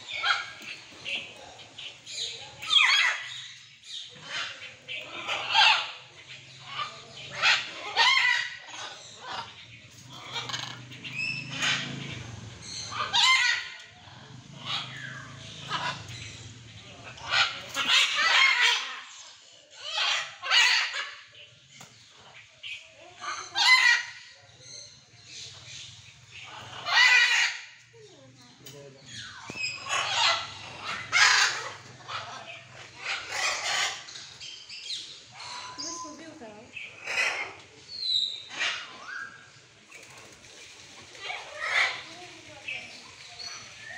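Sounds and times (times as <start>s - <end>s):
macaws squawking: 26.3s - 27.8s, 29.0s - 39.5s.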